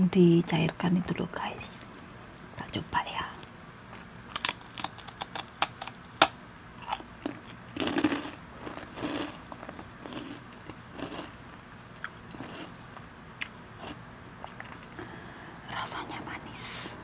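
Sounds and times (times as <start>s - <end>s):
wet chewing: 3.9s - 11.3s
cracker crunching: 3.9s - 15.0s.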